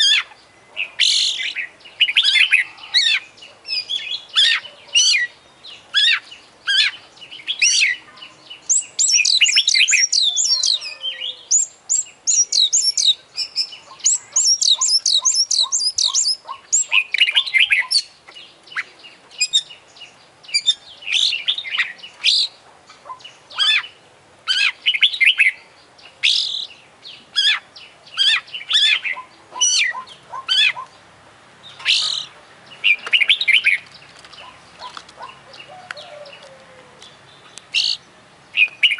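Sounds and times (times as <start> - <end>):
bird singing whistled phrases: 8.7 - 18.1.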